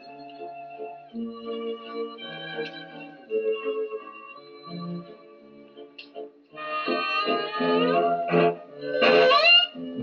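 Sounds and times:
violin clarinet and cello music: 6.6 - 10.0.

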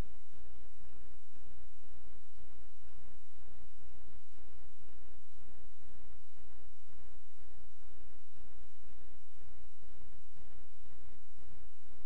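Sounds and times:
faint hiss: 0.0 - 12.0
steady low hum: 0.0 - 12.0.

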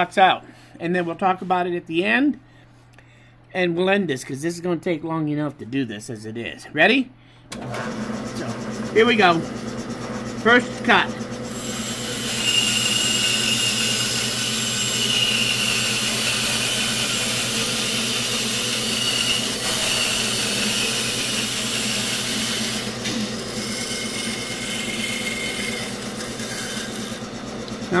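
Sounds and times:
bandsaw motor humming: 7.5 - 28.0
bandsaw blade cutting wood: 7.6 - 28.0.

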